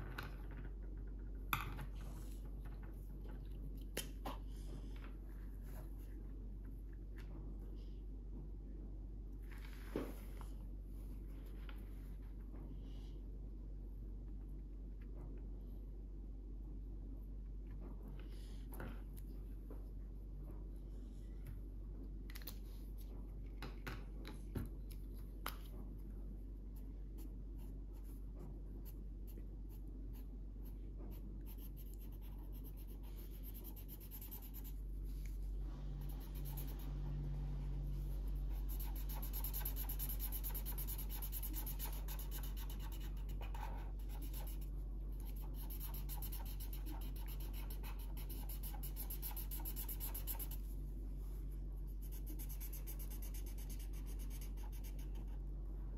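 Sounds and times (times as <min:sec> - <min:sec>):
pencil scratching on paper: 0:28.8 - 0:34.8, 0:36.0 - 0:37.1, 0:38.2 - 0:50.7, 0:51.9 - 0:55.4
marker strokes on paper: 0:45.2 - 0:50.7.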